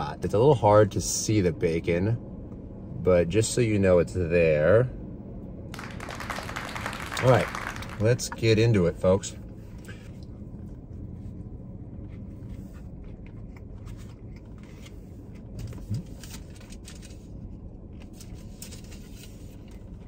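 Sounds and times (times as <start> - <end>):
car cabin hum: 5.8 - 16.2.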